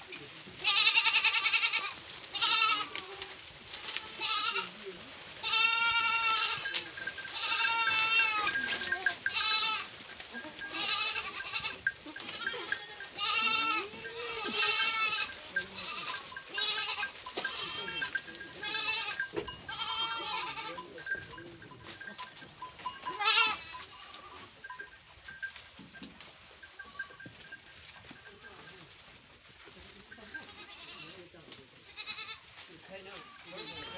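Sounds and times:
goats bleating: 0.0s - 4.8s, 5.4s - 24.6s, 30.2s - 31.2s, 31.8s - 33.9s.

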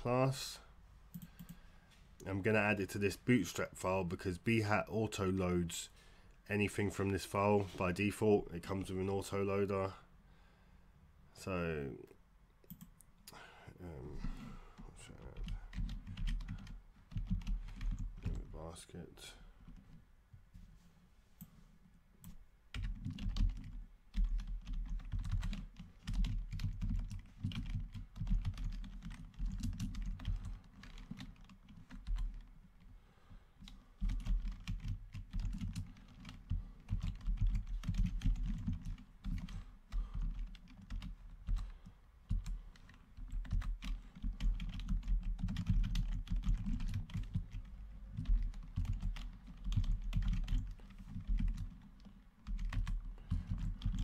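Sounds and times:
typing on keyboard: 15.4s - 18.4s, 22.2s - 32.5s, 33.6s - 54.0s.

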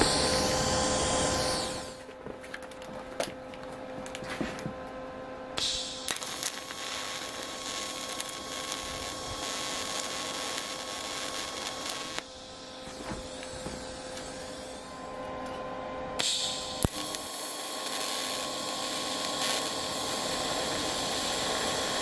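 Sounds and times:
welding arc hissing: 0.0s - 2.0s, 5.6s - 15.1s, 16.2s - 22.0s.

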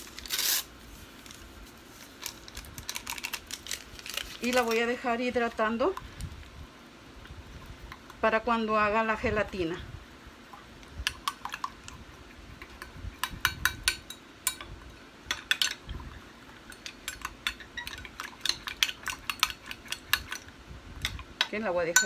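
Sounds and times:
metal spoon clinking in glass bowl: 16.7s - 20.4s.

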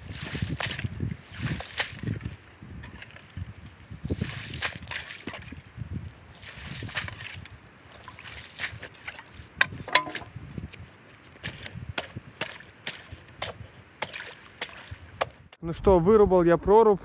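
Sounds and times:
slush and ice sloshing: 0.0s - 2.2s, 4.0s - 5.6s, 6.3s - 9.6s, 12.5s - 15.3s.

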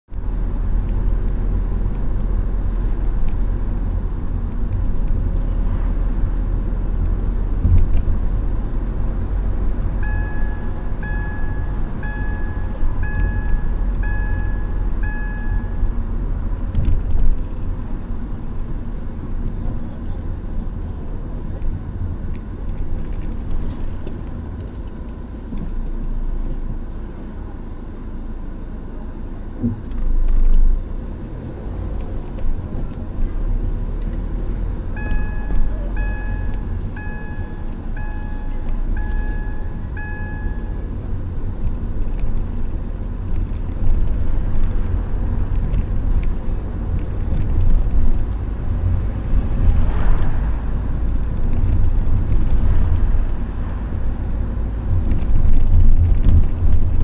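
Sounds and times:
car engine and road rumble: 0.0s - 57.0s
in-car warning chime beeps: 10.0s - 15.9s, 34.9s - 40.9s.

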